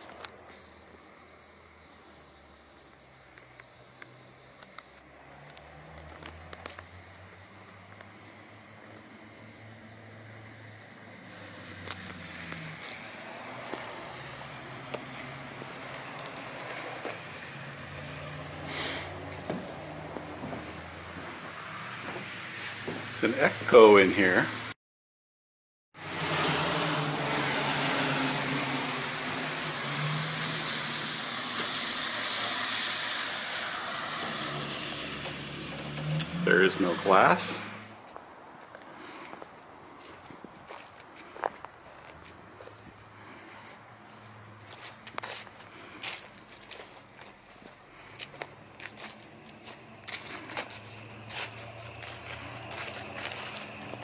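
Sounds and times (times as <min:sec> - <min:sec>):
vehicle engine humming: 0:00.0 - 0:24.8, 0:26.0 - 0:54.0
broad hiss: 0:00.4 - 0:05.0, 0:06.8 - 0:11.3, 0:17.6 - 0:19.3, 0:27.1 - 0:37.9.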